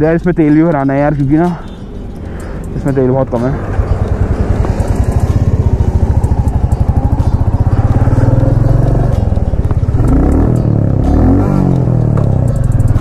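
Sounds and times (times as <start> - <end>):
motorcycle engine idling: 1.6 - 13.0.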